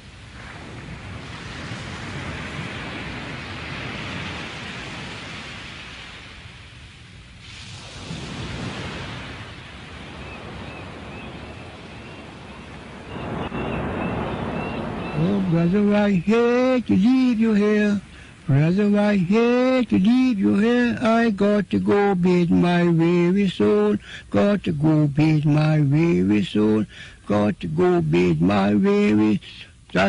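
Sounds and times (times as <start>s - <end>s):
ocean waves rushing: 0.0s - 29.8s.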